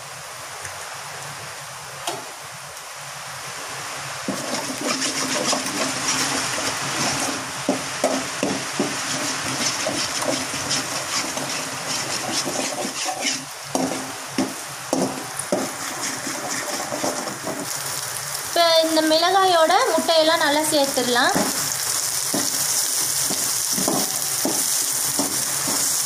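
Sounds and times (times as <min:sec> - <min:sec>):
eggs sizzling in a pan: 0:04.2 - 0:26.0
spatula scraping and tapping pan: 0:04.3 - 0:17.7, 0:21.3 - 0:21.7, 0:22.3 - 0:26.0.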